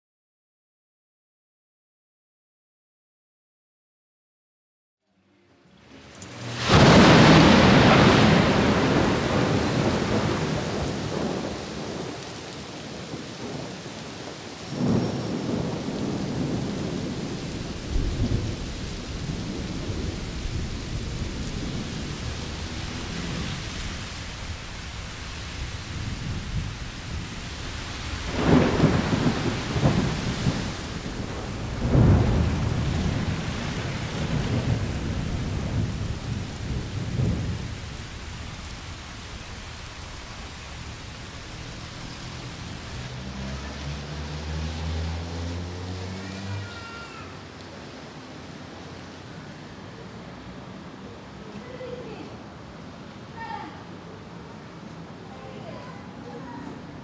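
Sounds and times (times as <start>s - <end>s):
steady rain: 5.0s - 57.0s
thunder rumbling: 6.3s - 43.2s.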